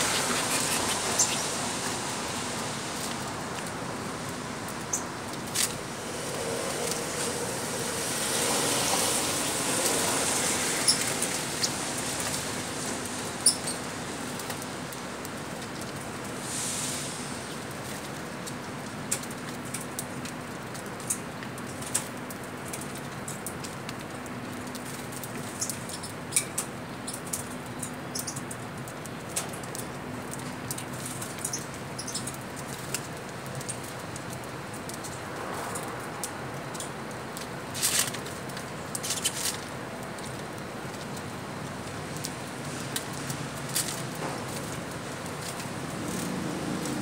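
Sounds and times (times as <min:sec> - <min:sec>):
wings fluttering: 0:00.0 - 0:01.7.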